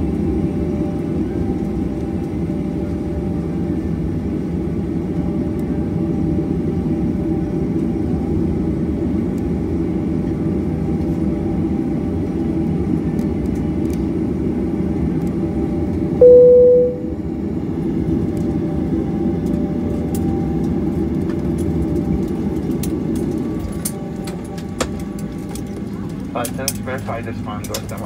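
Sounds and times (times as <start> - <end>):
jet engines rumbling at idle: 0.0 - 28.0
cabin chime: 16.2 - 17.1.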